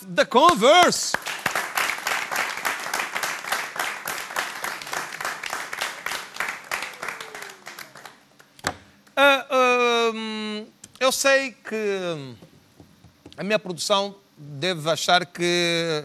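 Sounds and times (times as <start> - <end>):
audience applauding: 0.5 - 8.5.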